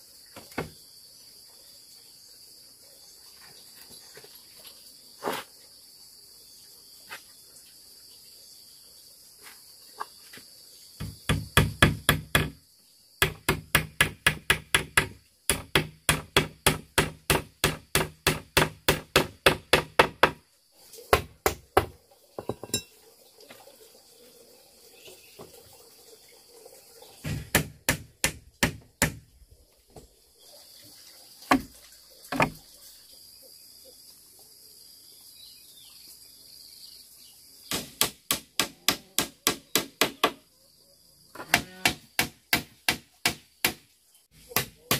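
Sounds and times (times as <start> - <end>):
insects buzzing: 0.0 - 44.9
hammer striking bamboo: 11.0 - 12.6, 13.2 - 20.4, 21.1 - 22.8, 27.2 - 29.2, 37.7 - 40.4, 41.4 - 44.9.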